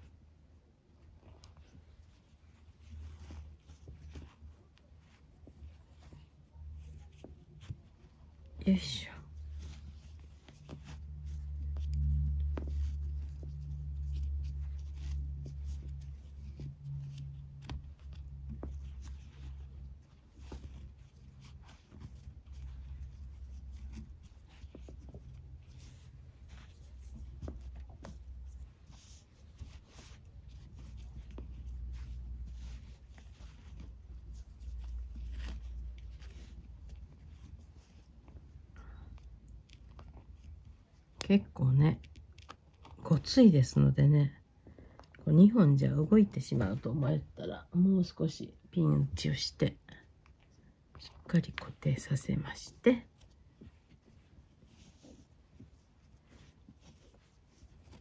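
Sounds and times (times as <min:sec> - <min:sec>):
cord rustling and rubbing: 0:00.0 - 0:58.0.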